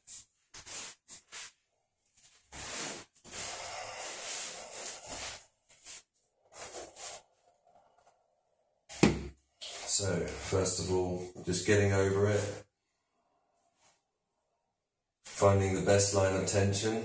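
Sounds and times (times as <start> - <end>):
person breathing heavily: 2.6 - 6.0.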